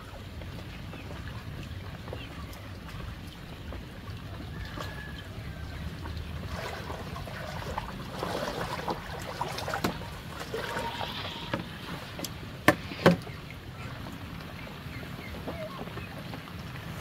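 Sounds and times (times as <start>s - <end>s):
water sloshing and splashing: 0.0s - 17.0s
wood knocking on wood: 12.6s - 13.3s.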